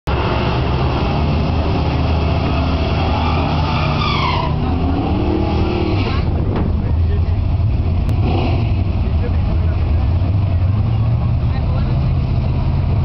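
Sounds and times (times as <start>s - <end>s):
racing car engine revving: 0.1s - 13.0s
high tyre squeal: 2.4s - 6.4s.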